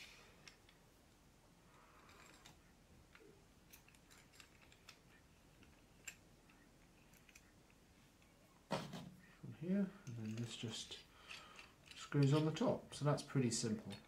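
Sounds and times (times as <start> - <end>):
soft rustle: 0.0 - 14.0
small metal and plastic clicks: 2.0 - 8.3.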